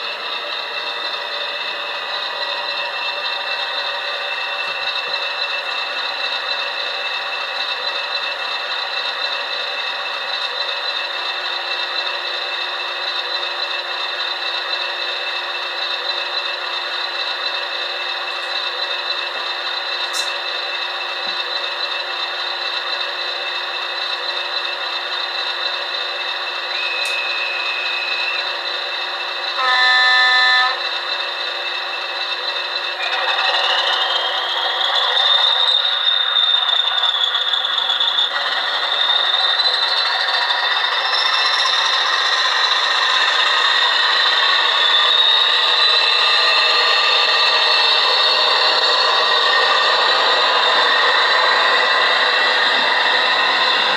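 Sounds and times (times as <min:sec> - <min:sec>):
model locomotive engine drone: 0:00.0 - 0:53.9
loud horn blast: 0:29.6 - 0:30.8.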